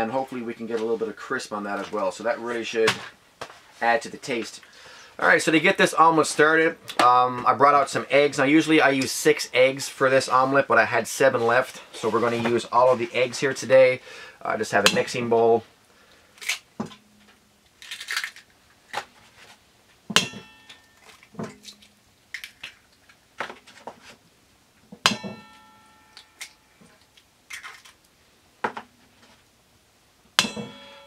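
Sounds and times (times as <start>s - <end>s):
eggs cracked on metal bowl: 17.8s - 19.0s, 20.2s - 22.8s, 27.5s - 28.0s
metal bowl ringing: 20.2s - 21.8s, 25.0s - 26.8s, 30.4s - 31.0s.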